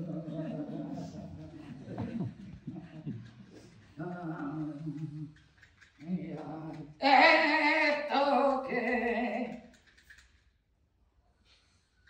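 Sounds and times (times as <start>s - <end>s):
woman singing long notes: 7.0s - 9.6s.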